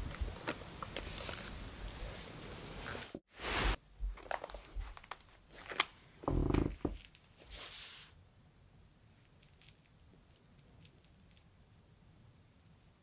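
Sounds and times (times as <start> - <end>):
kittens rustling and scuffling: 0.3 - 5.9.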